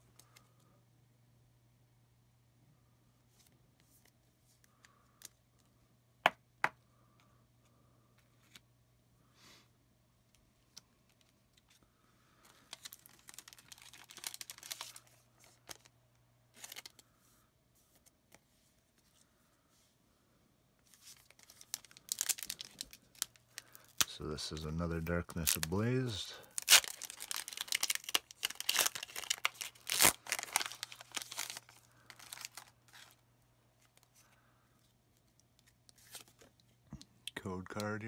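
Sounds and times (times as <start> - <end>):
faint steady hum: 0.0 - 38.0
foil wrapper crinkling: 11.1 - 15.9, 16.5 - 17.0, 20.9 - 33.2.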